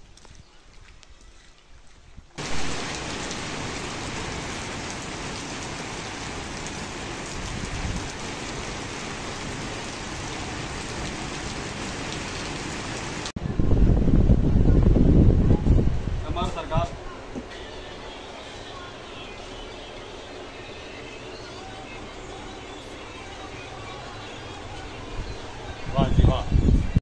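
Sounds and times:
rain on wet street: 0:02.4 - 0:13.9.

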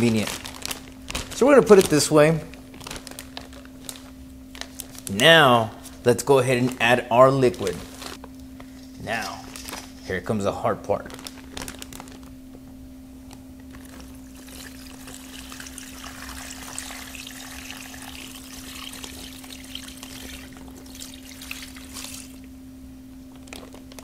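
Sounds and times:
liquid pouring into plastic bag: 0:00.0 - 0:05.2, 0:11.0 - 0:12.3, 0:13.7 - 0:22.5
steady low hum: 0:00.0 - 0:24.0.

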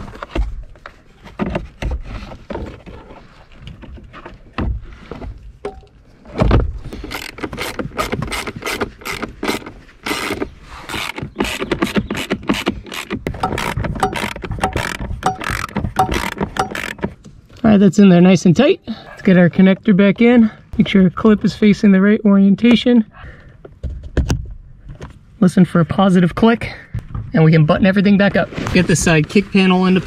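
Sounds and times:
parts knocking: 0:05.6 - 0:17.3
ratchet clicking: 0:13.0 - 0:17.0.

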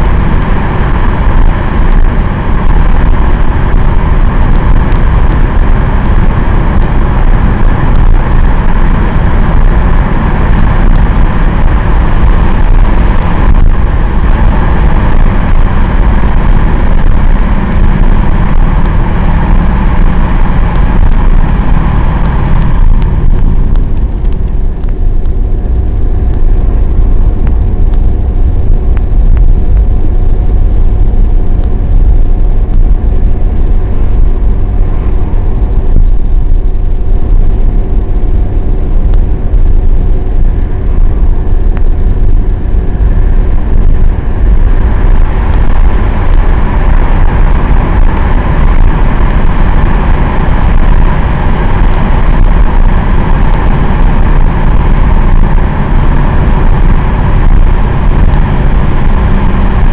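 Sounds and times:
diesel engine cruising: 0:00.0 - 0:59.9
tyre and road noise: 0:00.0 - 0:59.9.

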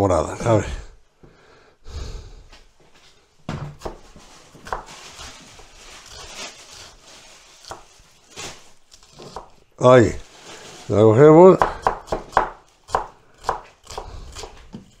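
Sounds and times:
knife slicing onion: 0:03.7 - 0:10.1, 0:11.5 - 0:15.0.

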